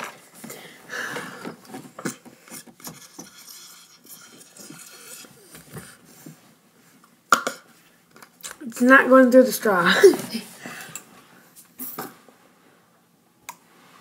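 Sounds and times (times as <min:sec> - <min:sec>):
sucking on drinking straw: 0:02.5 - 0:06.0.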